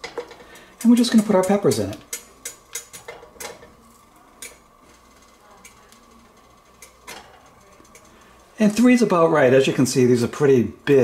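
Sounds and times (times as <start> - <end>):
peppers knocking against pan: 0.0 - 3.8.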